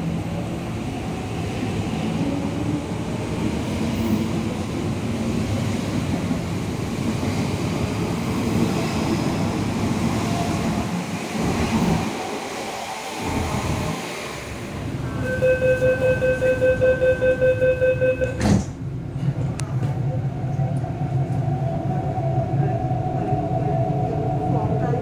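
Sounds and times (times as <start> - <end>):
train rumbling into platform: 0.0 - 25.0
rapid door warning beeping: 15.3 - 18.4.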